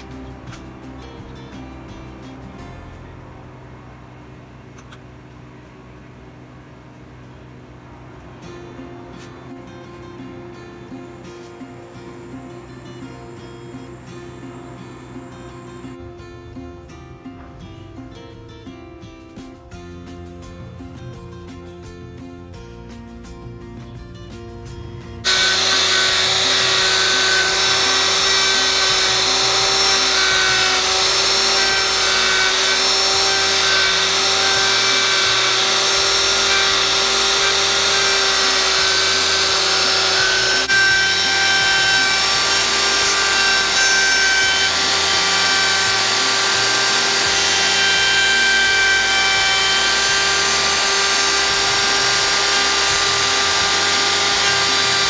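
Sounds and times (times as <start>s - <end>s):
power tool grinding: 11.1s - 16.0s, 25.2s - 55.0s.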